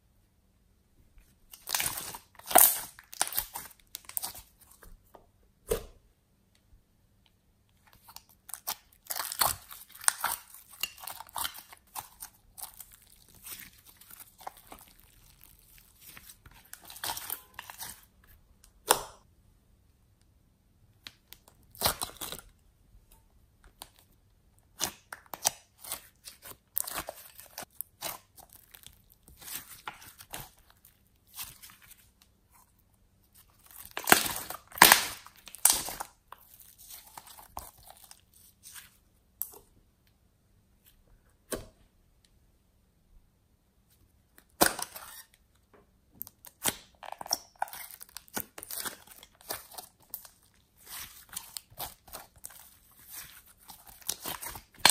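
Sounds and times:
slime squelching and crackling: 1.4 - 4.9, 7.8 - 18.3, 23.7 - 39.6, 46.2 - 54.9.

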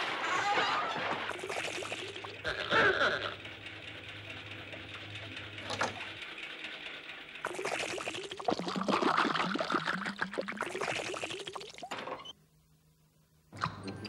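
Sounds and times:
cartoon liquid gurgling and pouring: 1.3 - 3.1, 7.4 - 12.2.

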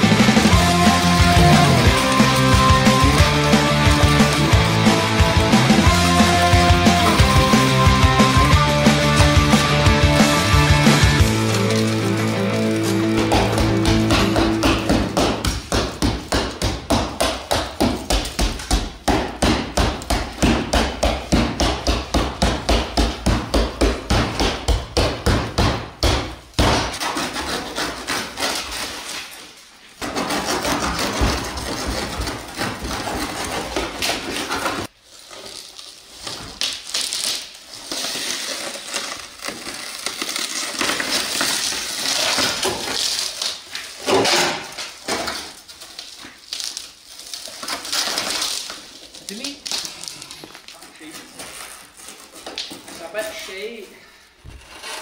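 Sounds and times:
shattered glass crunching: 10.8 - 14.1, 35.1 - 50.8.

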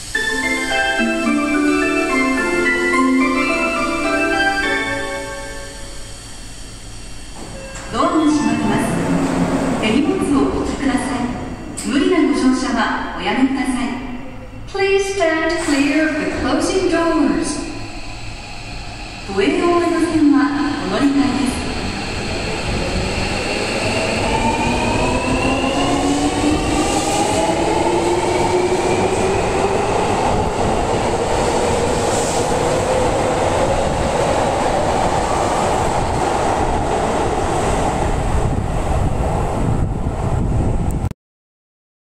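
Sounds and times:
train cars rumbling: 1.6 - 12.8.

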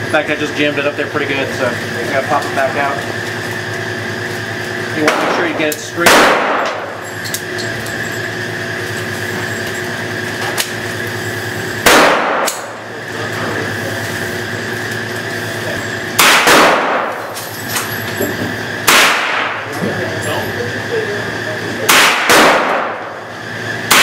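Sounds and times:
steady hum: 0.0 - 24.0
gunshots with echo: 5.1 - 6.9, 11.8 - 12.6, 16.2 - 17.2, 18.8 - 19.7, 21.9 - 23.1.

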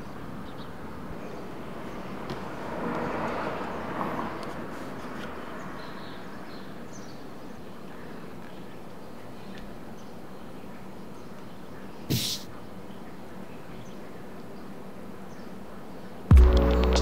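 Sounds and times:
steady background noise: 0.0 - 17.0
vehicle passing: 0.9 - 6.4.

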